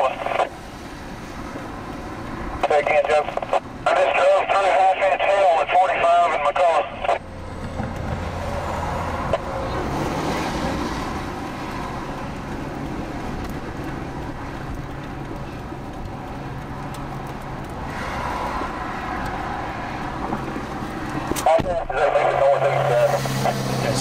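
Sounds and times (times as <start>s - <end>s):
traffic on wet road: 0.0s - 24.0s
pickup truck passing: 7.2s - 24.0s.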